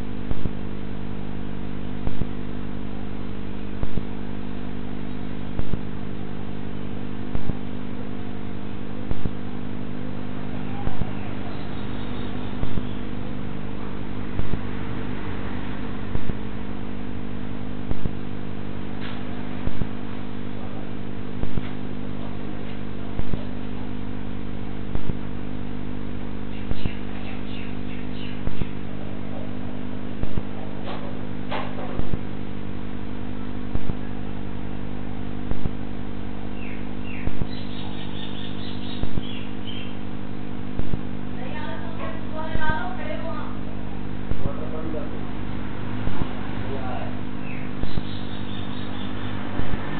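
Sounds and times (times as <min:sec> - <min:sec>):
electrical hum over hiss: 0:00.0 - 0:49.9
birds chirping: 0:10.6 - 0:13.4, 0:26.5 - 0:28.9, 0:36.5 - 0:40.1, 0:47.4 - 0:49.5
sharp clicks: 0:35.5 - 0:35.8, 0:40.8 - 0:41.0.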